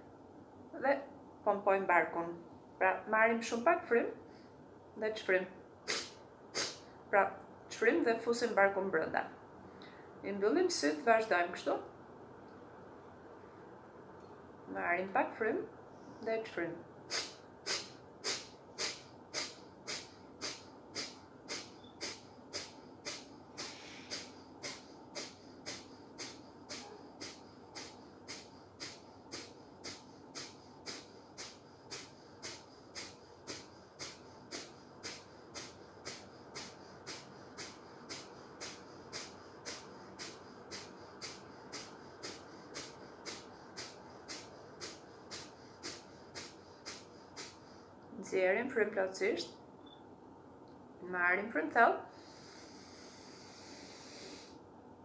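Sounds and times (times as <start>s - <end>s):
forceful nasal exhalations: 5.8s - 7.0s, 17.1s - 48.1s, 52.1s - 54.6s.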